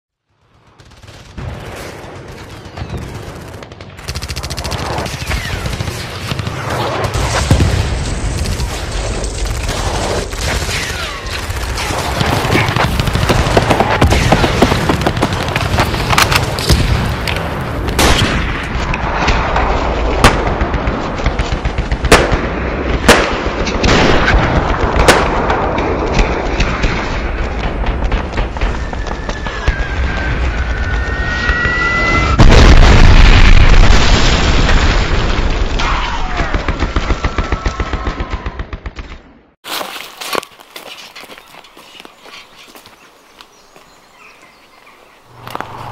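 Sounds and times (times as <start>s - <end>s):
blank gunshots: 0.8s - 19.6s.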